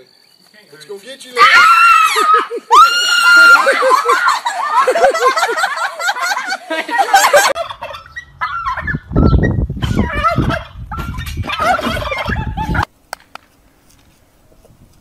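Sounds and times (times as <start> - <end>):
turkeys gobbling: 3.6 - 12.9.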